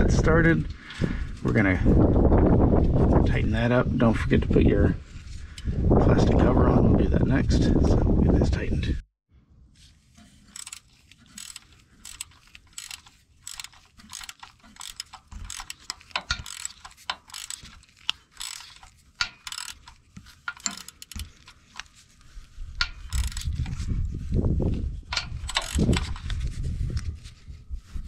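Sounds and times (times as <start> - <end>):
hand ratchet clicking: 10.2 - 21.9, 22.8 - 23.8, 25.1 - 26.3.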